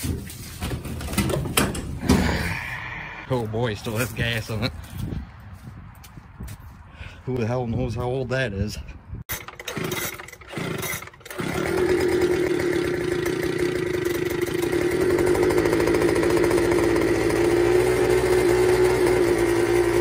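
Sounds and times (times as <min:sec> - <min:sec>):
mower engine running: 0:09.3 - 0:20.0
riding mower engine cranking: 0:09.3 - 0:20.0.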